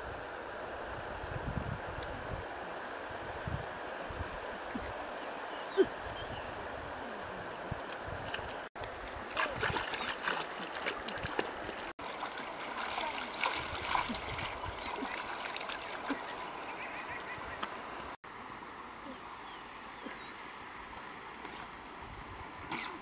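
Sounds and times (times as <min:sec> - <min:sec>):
river water flowing over stones: 0:00.0 - 0:23.0
splashing in shallow water: 0:07.0 - 0:18.2.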